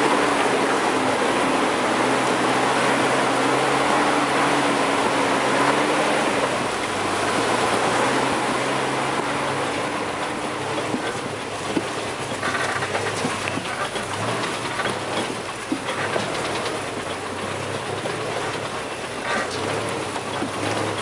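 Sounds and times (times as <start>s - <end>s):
vehicle rolling over rough track: 0.0s - 21.0s
rattles and knocks: 10.2s - 21.0s.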